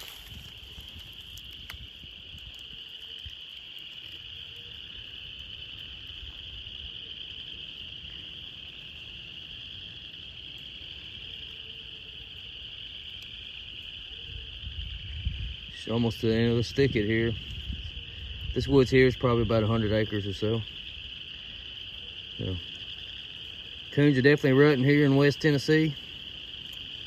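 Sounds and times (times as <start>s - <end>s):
wind rumbling on microphone: 0.0s - 3.6s, 13.4s - 21.9s
high-pitched night animal chorus: 0.0s - 27.0s.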